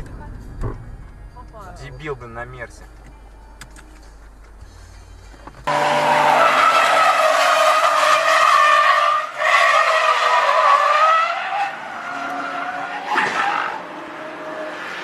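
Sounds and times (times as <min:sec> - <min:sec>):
tyres squealing: 0:05.7 - 0:13.8.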